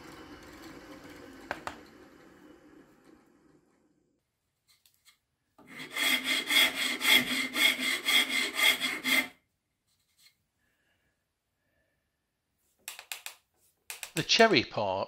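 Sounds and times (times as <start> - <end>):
rasp shaping wood: 5.6 - 9.4.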